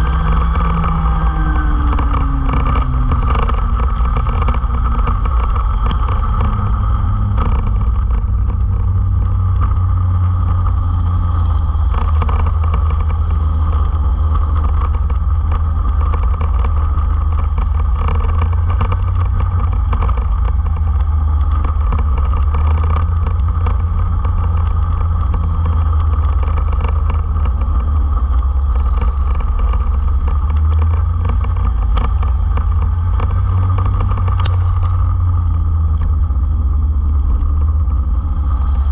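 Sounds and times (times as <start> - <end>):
racing kart engines: 0.0 - 38.9.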